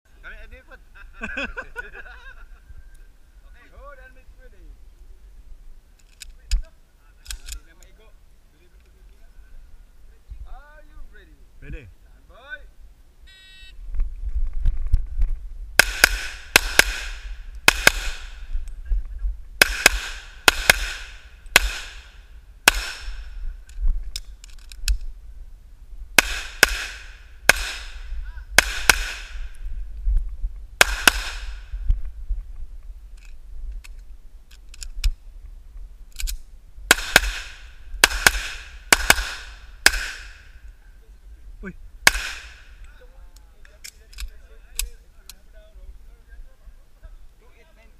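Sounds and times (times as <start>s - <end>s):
low wind rumble: 0.1s - 47.9s
pistol shots: 15.8s - 18.4s, 19.6s - 23.3s, 26.2s - 28.0s, 28.6s - 29.4s, 30.8s - 31.6s, 36.9s - 40.4s, 42.0s - 42.7s.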